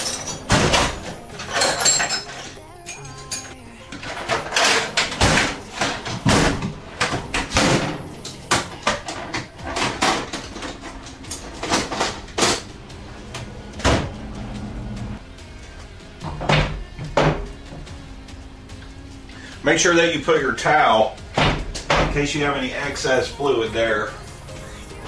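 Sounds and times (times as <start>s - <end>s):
tools clattering: 0.0s - 12.8s
metal drawers sliding: 0.0s - 15.2s.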